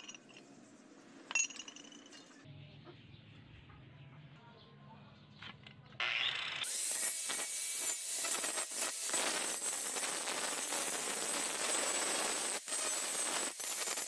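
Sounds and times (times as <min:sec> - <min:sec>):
angle grinder cutting steel: 0:06.0 - 0:14.0.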